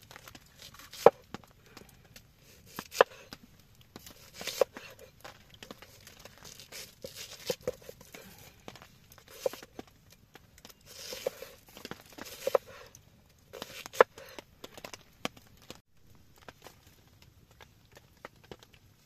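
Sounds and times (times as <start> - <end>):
rustling: 0.0 - 19.0
tearing: 0.1 - 1.2, 4.0 - 8.6, 9.2 - 9.8, 10.7 - 14.9.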